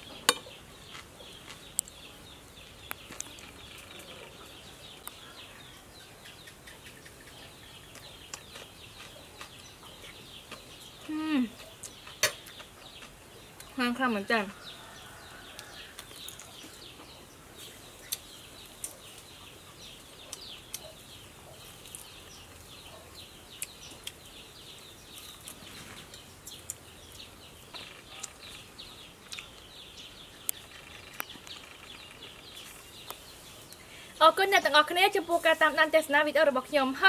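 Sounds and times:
small birds chirping: 0.0s - 37.0s
clicks and smacks of eating: 0.3s - 2.1s, 2.8s - 4.1s, 6.3s - 13.8s, 15.4s - 16.8s, 23.5s - 24.3s, 25.1s - 28.6s, 29.2s - 29.7s.

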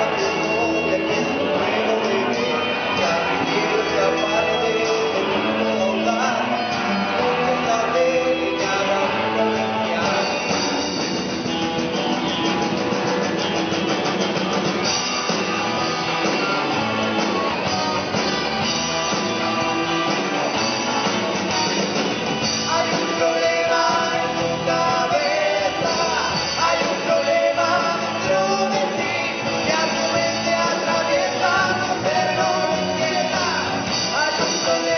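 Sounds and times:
person singing: 0.0s - 11.1s, 19.0s - 34.9s
rock band playing live: 0.0s - 34.9s.

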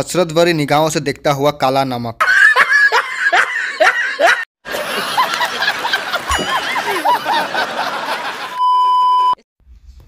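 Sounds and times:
man laughing heartily: 2.2s - 8.6s.

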